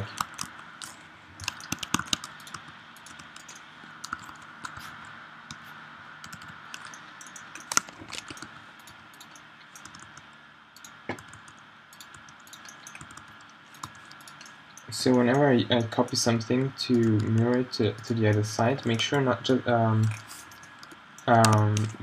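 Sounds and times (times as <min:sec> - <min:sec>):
keyboard keys clicking: 0:00.0 - 0:05.6, 0:06.2 - 0:19.1, 0:20.0 - 0:22.0.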